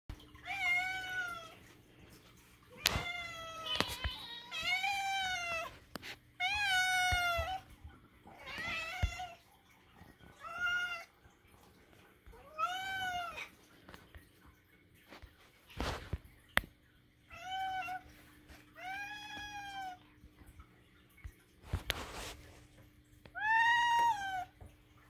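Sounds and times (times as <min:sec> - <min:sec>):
cats meowing: 0:02.7 - 0:05.8, 0:06.4 - 0:09.4.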